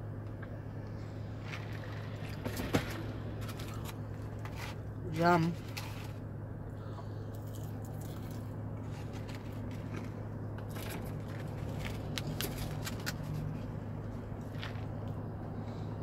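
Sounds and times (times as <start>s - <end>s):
car engine idling: 0.0s - 16.0s
person eating fries: 7.3s - 10.1s.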